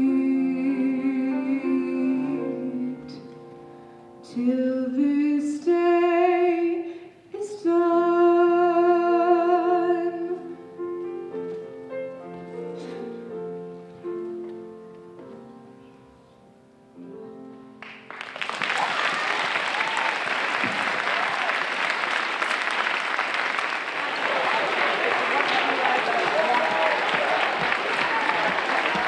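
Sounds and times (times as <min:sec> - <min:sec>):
woman singing with vibrato: 0:00.0 - 0:03.2, 0:04.2 - 0:10.6
grand piano chords: 0:00.0 - 0:06.7, 0:08.4 - 0:18.4
audience applause: 0:17.8 - 0:29.0.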